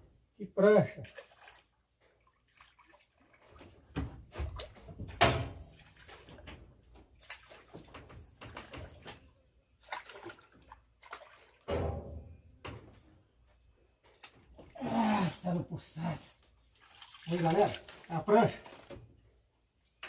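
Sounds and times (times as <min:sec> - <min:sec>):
fish splashing in water: 0:09.8 - 0:11.7, 0:16.8 - 0:18.7.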